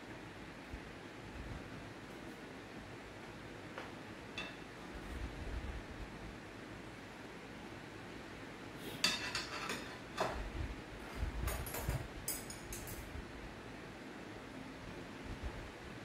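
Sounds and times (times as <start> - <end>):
metal utensils clinking on pot: 4.4 - 4.6, 9.0 - 10.3, 11.5 - 13.0.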